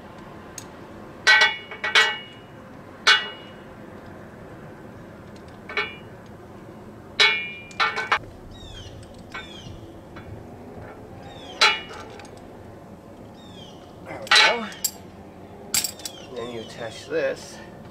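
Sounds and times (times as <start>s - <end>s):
metal hose fittings clinking: 11.6s - 12.4s, 14.1s - 15.0s, 15.7s - 16.2s.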